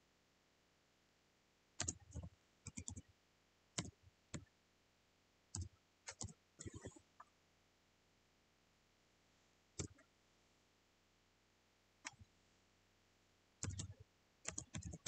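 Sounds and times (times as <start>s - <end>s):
keyboard keys clicking: 1.8s - 3.0s, 13.6s - 15.0s.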